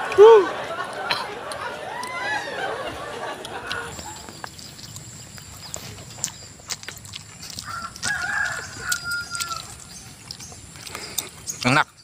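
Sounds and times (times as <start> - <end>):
rooster crowing: 1.9 - 3.2, 7.6 - 10.0.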